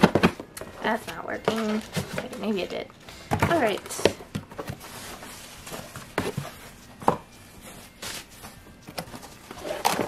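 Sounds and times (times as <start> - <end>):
cardboard rustling scrape: 4.6 - 6.8.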